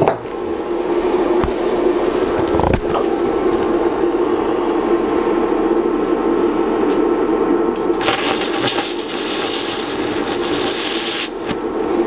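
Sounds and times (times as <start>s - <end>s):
steady hum: 0.0s - 12.0s
welding arc crackling hiss: 7.9s - 12.0s.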